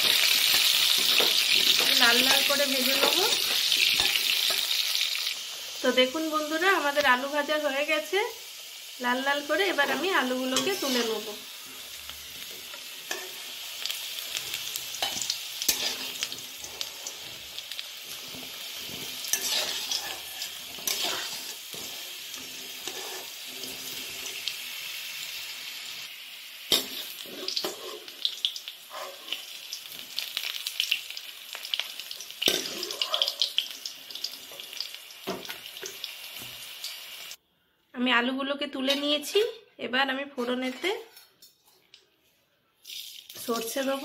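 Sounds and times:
potato wedges sizzling in oil: 0:00.0 - 0:37.4, 0:42.8 - 0:44.0
metal spatula scraping a pan: 0:00.1 - 0:04.8, 0:09.8 - 0:13.6, 0:14.3 - 0:24.5, 0:26.7 - 0:28.2, 0:28.9 - 0:29.5, 0:32.4 - 0:33.6.

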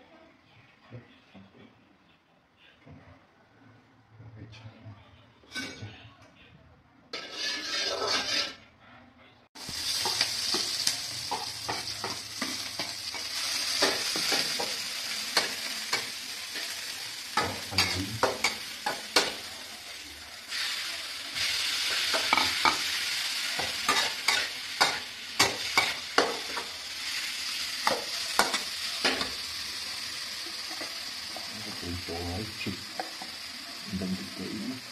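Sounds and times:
metal spatula scraping a pan: 0:05.4 - 0:05.9, 0:07.1 - 0:08.7, 0:20.5 - 0:27.2
hot oil sizzling in a wok: 0:07.1 - 0:08.6, 0:09.6 - 0:34.9.

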